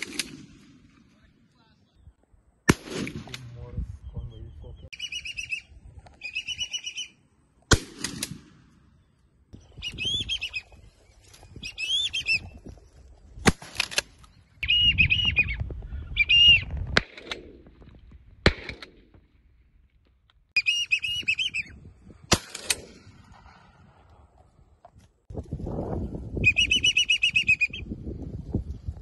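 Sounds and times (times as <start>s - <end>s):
shotgun shots: 0.0s - 0.9s, 2.7s - 3.7s, 7.7s - 8.8s, 13.4s - 14.2s, 16.8s - 17.7s, 18.4s - 19.2s, 22.2s - 24.0s
high chirping bird calls: 3.9s - 7.2s, 9.6s - 12.8s, 14.3s - 16.7s, 20.6s - 21.8s.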